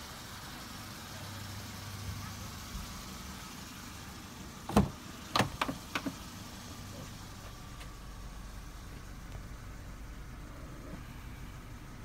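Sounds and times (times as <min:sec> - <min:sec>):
car door clunks swinging open: 0:04.7 - 0:06.2
car door handle and latch click: 0:04.7 - 0:06.2.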